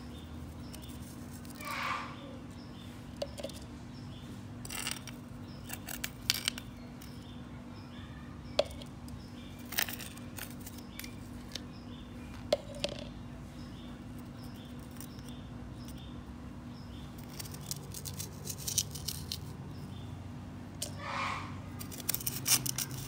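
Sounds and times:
steady low hum: 0.0s - 23.0s
spoon scraping soil: 0.4s - 1.8s, 9.6s - 11.6s, 17.2s - 19.6s, 21.7s - 23.0s.

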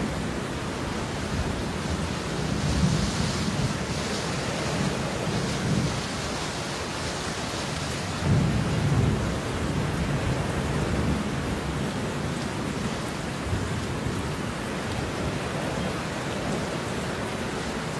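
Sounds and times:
steady rain: 0.0s - 17.9s
low rolling thunder: 7.9s - 12.3s.

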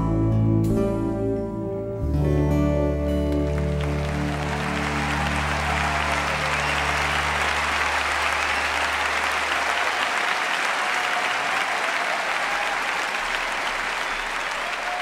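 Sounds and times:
song's low held notes: 0.0s - 8.3s
audience applauding: 3.3s - 15.0s.

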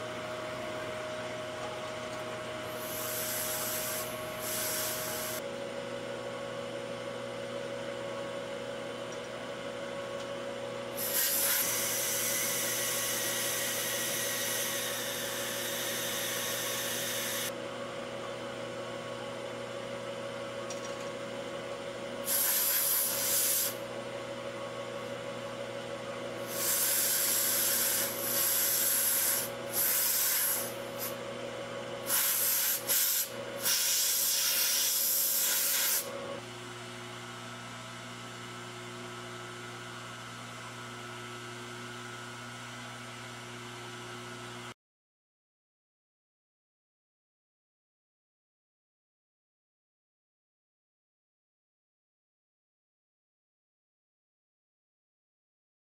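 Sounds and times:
milling machine humming: 0.0s - 44.7s
compressed air blasts: 2.8s - 5.4s, 11.0s - 12.5s, 22.2s - 23.8s, 26.4s - 31.2s, 32.0s - 36.1s.

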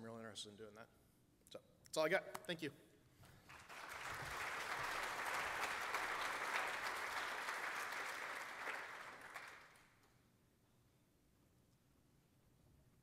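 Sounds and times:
audience applauding: 3.4s - 10.1s.

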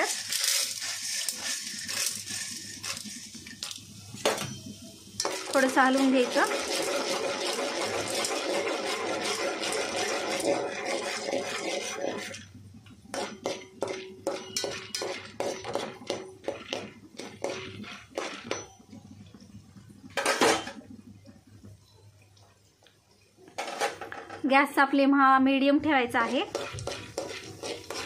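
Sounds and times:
metal spoon scraping pot: 0.0s - 3.3s, 5.2s - 12.5s, 13.1s - 18.8s, 26.1s - 28.0s
oil sizzling in pot: 0.0s - 28.0s.

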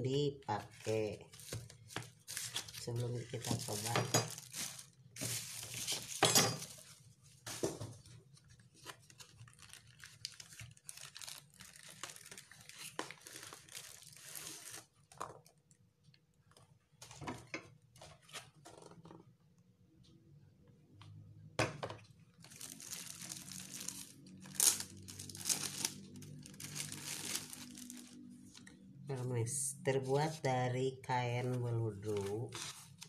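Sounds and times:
cardboard and plastic rustling: 0.6s - 15.6s, 22.4s - 28.7s, 31.5s - 33.0s.

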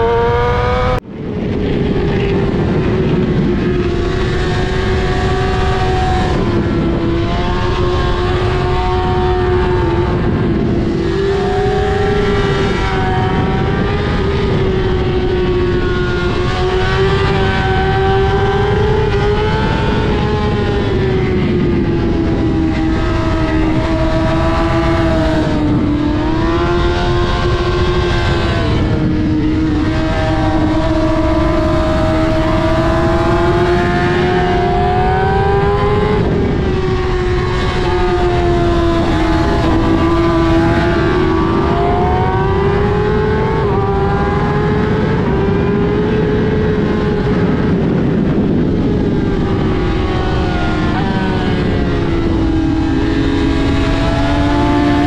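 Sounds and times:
motorcycle engine at high revs: 0.0s - 55.0s
steady rushing noise: 0.0s - 55.0s.

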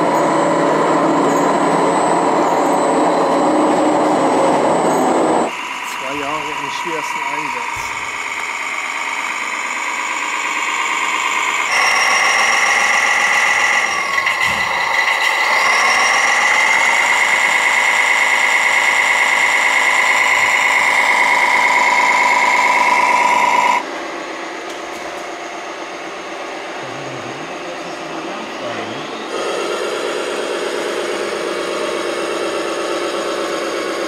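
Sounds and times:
toy truck motor whining: 0.0s - 23.8s.

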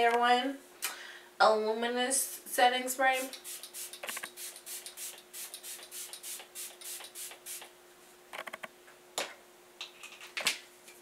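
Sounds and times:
spray bottle hissing: 3.2s - 7.7s.

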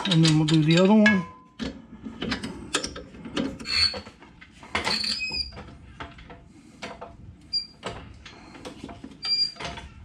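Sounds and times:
wrench squeaks: 3.6s - 4.1s, 4.8s - 5.6s, 7.5s - 7.8s, 9.2s - 9.6s.

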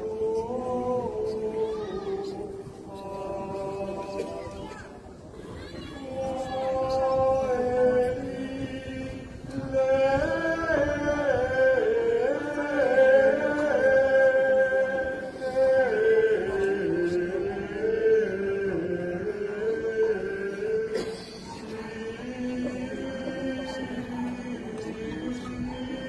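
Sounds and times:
person singing slow melody: 0.0s - 5.1s.

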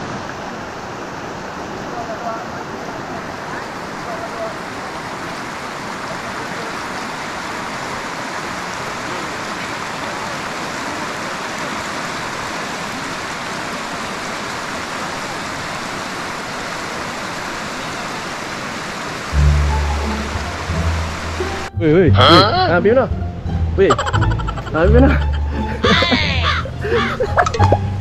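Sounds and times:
river flowing over rocks: 0.0s - 21.7s
music with heavy bass: 19.4s - 22.9s, 23.6s - 26.7s.

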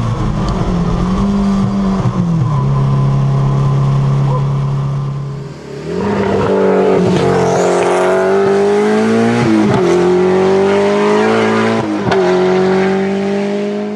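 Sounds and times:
car engine revving under load: 0.0s - 13.9s.

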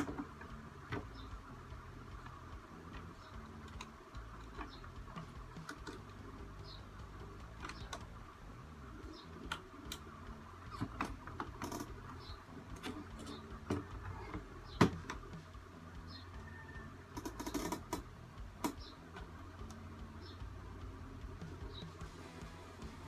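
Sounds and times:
plastic parts clicking and tapping: 2.1s - 6.3s, 7.2s - 8.2s, 9.4s - 15.5s.

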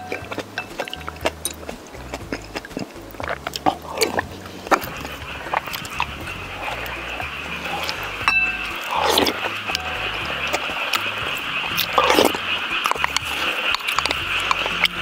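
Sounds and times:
chewing and slurping soup: 0.0s - 15.0s
wooden spoon clicking on bowls: 0.0s - 15.0s
steady high tone: 4.4s - 15.0s.

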